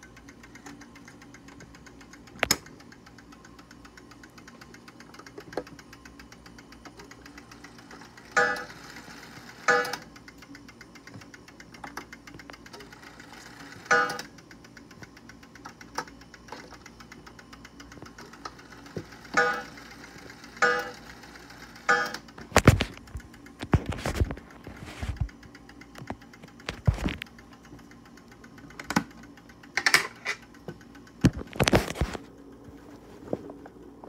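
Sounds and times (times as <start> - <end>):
clock ticking: 0.0 - 22.4.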